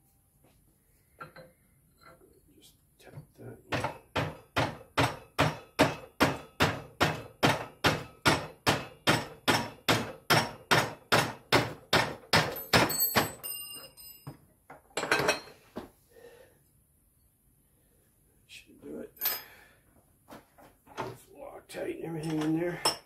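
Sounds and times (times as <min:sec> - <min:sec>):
hammer striking metal: 0:03.7 - 0:13.4
short metallic ring: 0:12.6 - 0:14.3.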